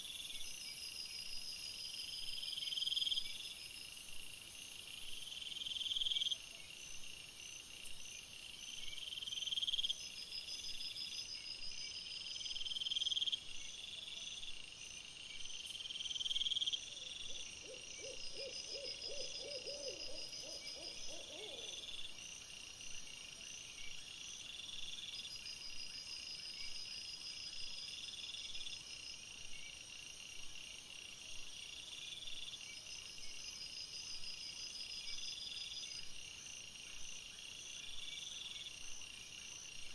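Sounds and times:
crickets trilling: 15.8s - 22.6s.

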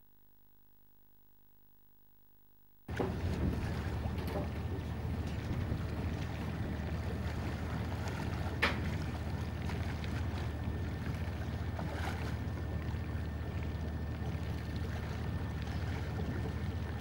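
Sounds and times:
boat engine idling: 2.9s - 17.0s
faint water splashes: 2.9s - 17.0s.

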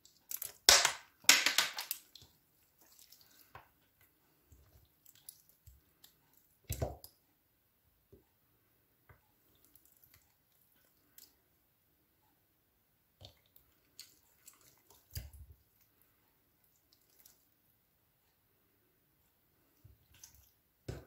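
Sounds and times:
sticky slime squelches: 0.0s - 7.2s, 9.3s - 11.6s, 13.1s - 17.7s, 19.7s - 21.0s.

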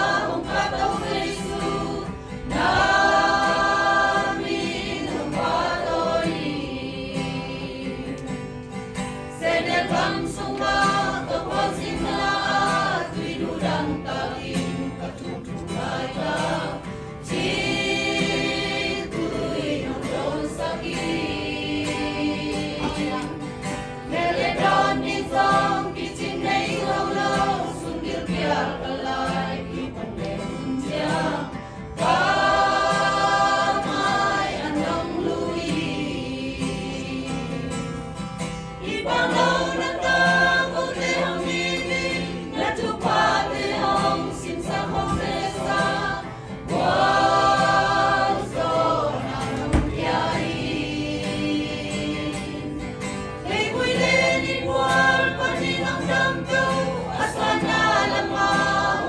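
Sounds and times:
acoustic guitar strumming: 0.0s - 59.0s
choir singing a hymn: 0.0s - 59.0s.

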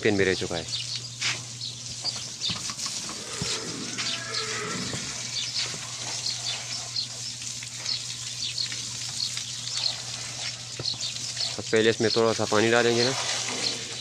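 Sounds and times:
water spraying from hose: 0.5s - 14.0s
water splashing off wall: 7.4s - 14.0s.

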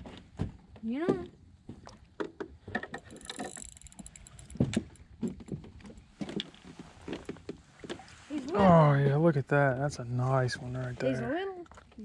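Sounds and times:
knocks and taps in a small boat: 0.0s - 3.2s, 4.4s - 8.1s.

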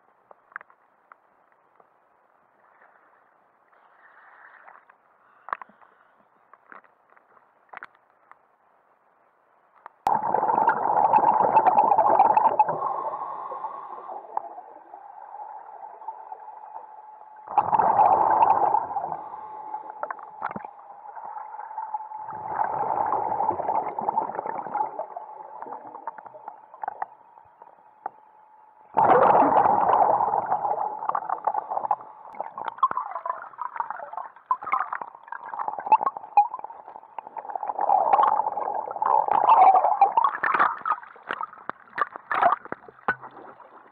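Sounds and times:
faint steady tone: 0.0s - 41.5s
underwater bubbles gurgling: 10.1s - 28.2s, 28.8s - 43.9s.

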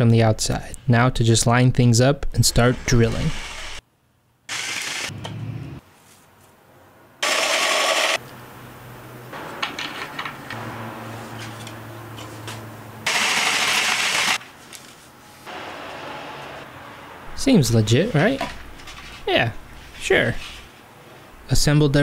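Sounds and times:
drill boring holes: 4.5s - 5.1s, 7.2s - 8.2s, 13.1s - 14.4s.

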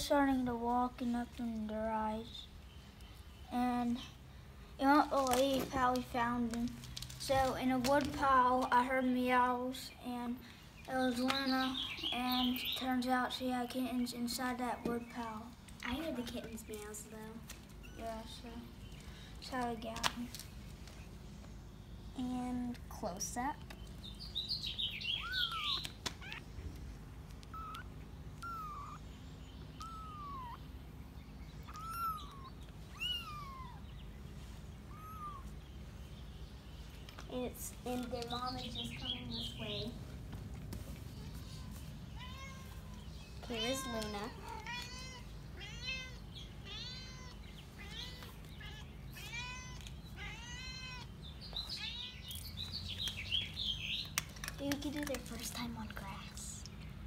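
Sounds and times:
high bird-like chirps: 24.1s - 26.5s, 27.5s - 34.2s, 34.8s - 35.8s
kittens mewing: 25.1s - 36.0s, 41.1s - 52.5s
kitten mewing: 25.2s - 26.6s, 27.4s - 29.1s, 29.7s - 30.7s, 31.6s - 33.8s, 34.8s - 35.6s.

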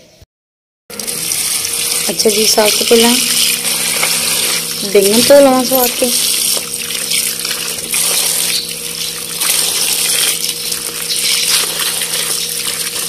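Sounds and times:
water pouring and splashing: 0.9s - 13.0s
hand rubbing vegetables: 1.2s - 13.0s.

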